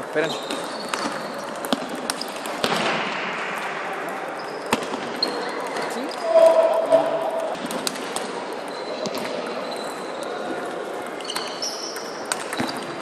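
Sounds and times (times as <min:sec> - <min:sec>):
sports hall hum: 0:00.0 - 0:13.0
high squeaks: 0:06.1 - 0:07.6.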